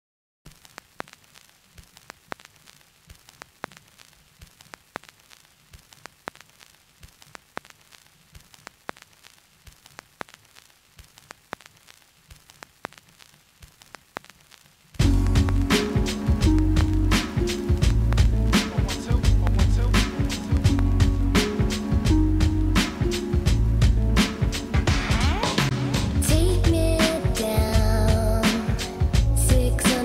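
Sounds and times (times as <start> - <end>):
crackling static clicks: 0.5 - 30.0
low hum and hiss: 0.5 - 30.0.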